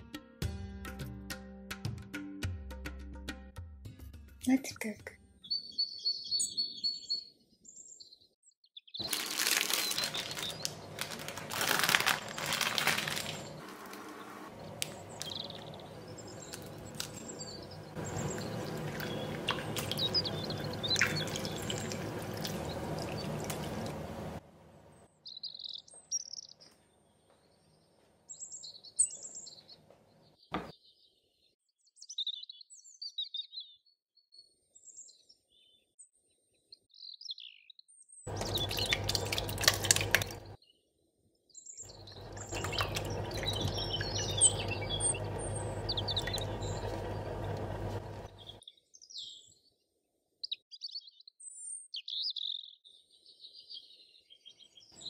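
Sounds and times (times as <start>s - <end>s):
birds chirping: 5.4s - 33.8s, 36.7s - 40.6s, 41.6s - 49.6s
water pouring into a glass bowl: 18.0s - 24.4s, 38.3s - 40.6s, 42.2s - 48.3s.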